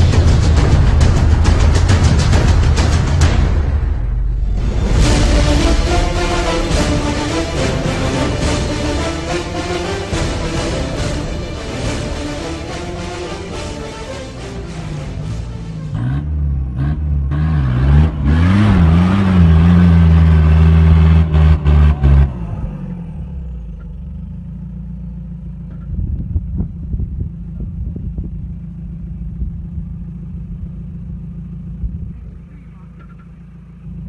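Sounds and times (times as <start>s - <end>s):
diesel engine revving under load: 0.0s - 25.0s.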